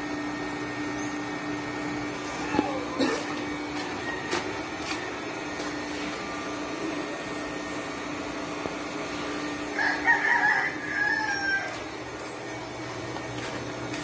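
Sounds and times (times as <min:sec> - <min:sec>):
steady low hum: 0:00.0 - 0:14.0
rooster crowing: 0:03.8 - 0:05.2, 0:09.6 - 0:12.0.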